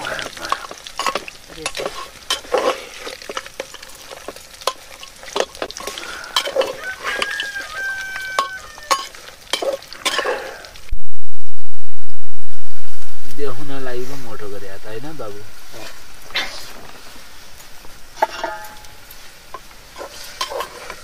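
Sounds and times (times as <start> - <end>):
food sizzling in oil: 0.0 - 10.9, 14.6 - 21.0
metal spoon scraping clay pot: 0.1 - 7.5, 19.6 - 21.0.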